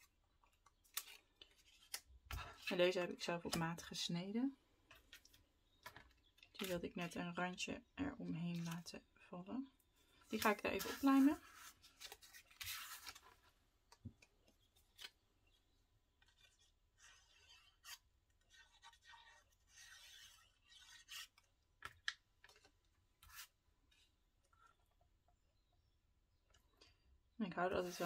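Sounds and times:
paper rustling and scraping: 10.3s - 13.5s, 16.2s - 21.4s.

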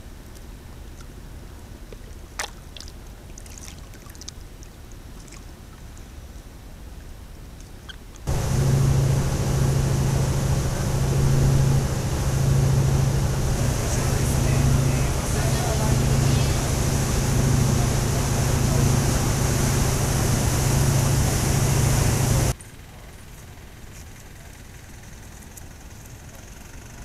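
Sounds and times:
boat engine humming: 0.0s - 22.6s
water lapping and splashing: 1.9s - 6.3s, 8.3s - 22.6s
water rushing past hull: 2.2s - 5.7s, 8.3s - 22.6s.

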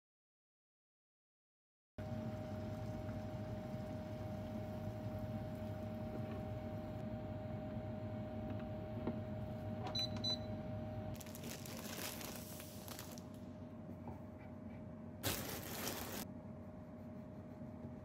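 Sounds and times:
water boiling in saucepan: 2.0s - 7.0s
plastic bag crinkling: 11.2s - 13.4s, 15.2s - 16.2s.

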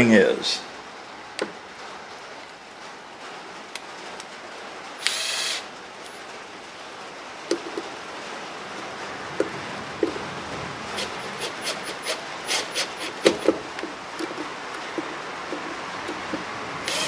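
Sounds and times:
cordless drill whirring: 5.0s - 5.7s, 10.9s - 13.5s.

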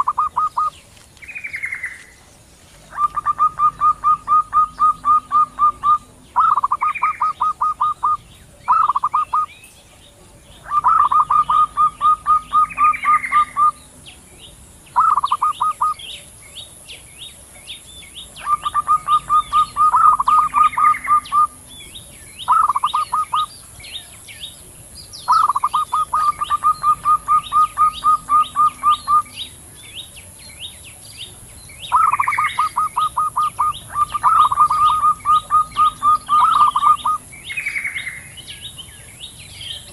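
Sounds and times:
doves calling: 0.0s - 39.9s
faint high chirping: 0.0s - 39.9s.

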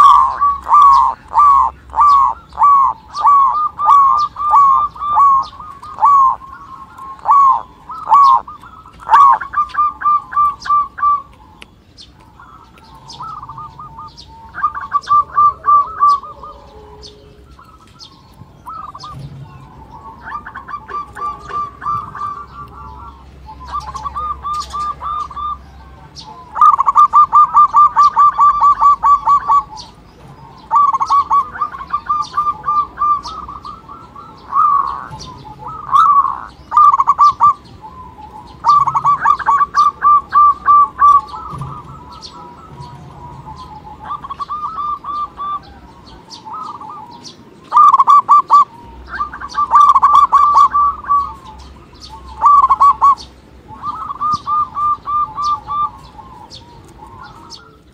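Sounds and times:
doves cooing rapidly: 0.0s - 57.9s.

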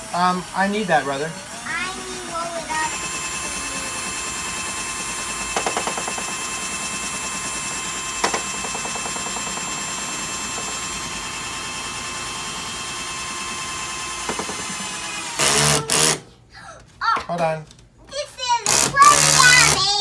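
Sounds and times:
cordless drill whine: 0.0s - 16.2s, 18.7s - 19.8s
drill clicks: 2.9s - 16.2s, 18.6s - 19.9s.

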